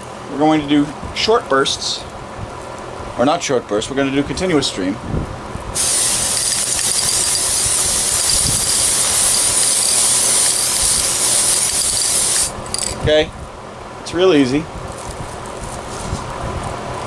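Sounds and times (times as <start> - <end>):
aerosol spray hissing: 5.8 - 12.6.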